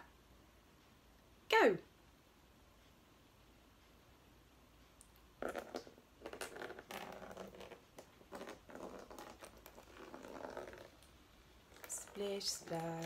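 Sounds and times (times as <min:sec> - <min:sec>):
water pouring into plastic tub: 0:05.4 - 0:11.1, 0:11.7 - 0:13.0.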